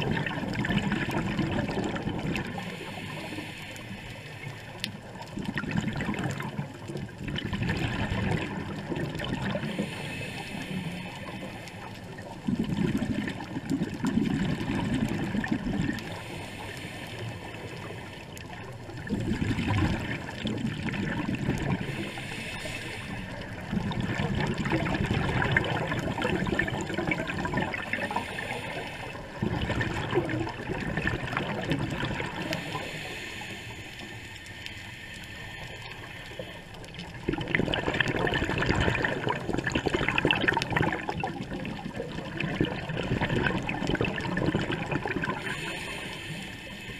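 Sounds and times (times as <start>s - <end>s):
exhaled bubbles underwater: 0.0s - 46.9s
regulator inhalation hiss: 2.6s - 4.8s, 9.7s - 12.0s, 16.1s - 18.2s, 21.8s - 23.6s, 27.9s - 29.4s, 32.4s - 36.9s, 45.4s - 46.9s.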